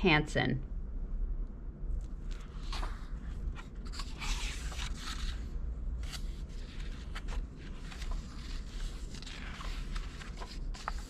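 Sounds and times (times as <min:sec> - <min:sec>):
book pages turning: 0:02.0 - 0:11.0
pages crinkling and tapping: 0:02.3 - 0:11.0.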